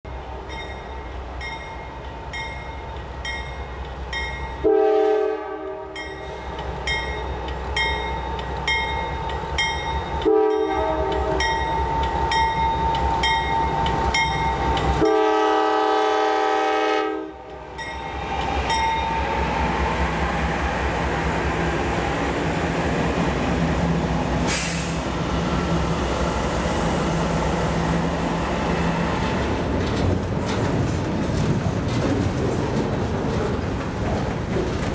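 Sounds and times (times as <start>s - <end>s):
crossing bell ringing: 0.1s - 4.7s, 5.9s - 15.2s, 17.7s - 19.4s
train wheel noise: 0.1s - 34.9s
locomotive air horn blasts: 4.6s - 6.1s, 10.2s - 11.6s, 15.0s - 17.6s
locomotive engine rumble: 17.4s - 34.9s.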